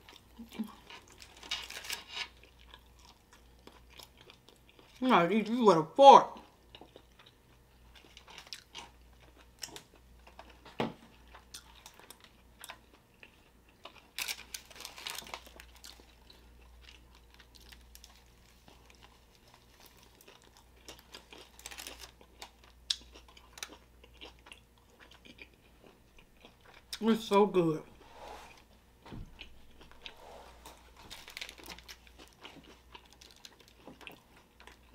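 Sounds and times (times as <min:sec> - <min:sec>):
chewing food: 0:00.0 - 0:05.0, 0:06.3 - 0:27.0, 0:29.2 - 0:34.9
foil wrapper crinkling: 0:01.2 - 0:02.3, 0:14.2 - 0:16.1, 0:17.5 - 0:22.2, 0:30.8 - 0:34.0
crunching: 0:29.4 - 0:34.9.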